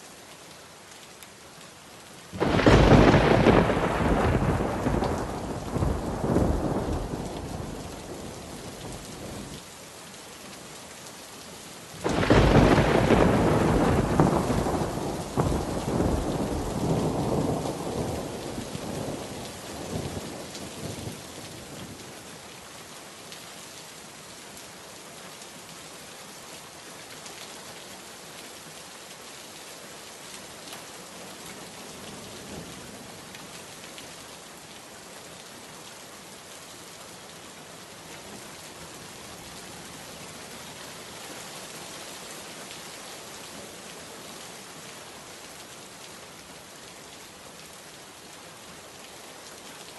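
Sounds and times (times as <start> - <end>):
individual raindrops: 0.0 - 49.9
steady rain falling: 0.0 - 49.9
thunder rumbling: 2.4 - 7.8, 12.1 - 19.2.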